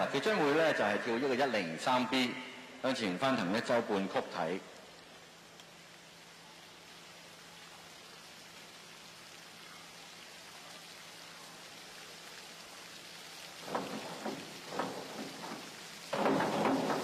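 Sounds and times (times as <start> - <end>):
swimming pool hall hiss: 0.0 - 17.0
water splash: 12.0 - 17.0
sharp knocks: 13.6 - 17.0.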